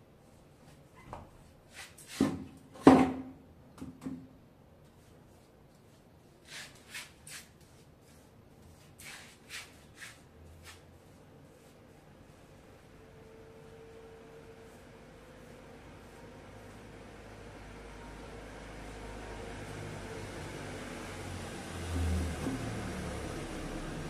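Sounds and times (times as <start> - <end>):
paintbrush scratching on wall: 4.9 - 18.3.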